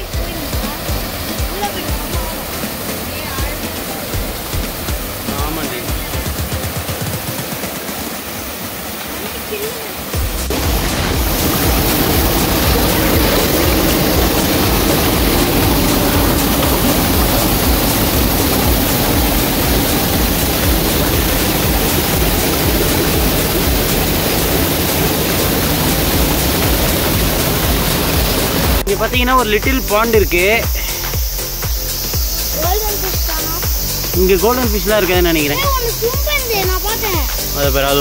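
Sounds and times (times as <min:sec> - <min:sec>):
river water rushing over stones: 0:00.0 - 0:29.0.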